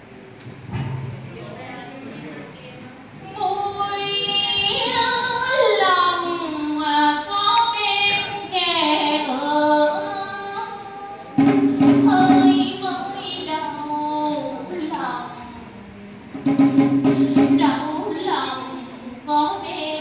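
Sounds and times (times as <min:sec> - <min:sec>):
woman singing over loudspeaker: 0:03.2 - 0:15.8, 0:17.2 - 0:20.0.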